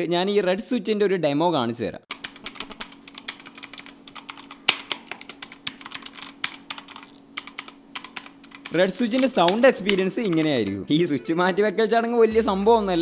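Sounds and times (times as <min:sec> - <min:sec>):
mechanical keyboard key clacks: 0:02.1 - 0:10.8.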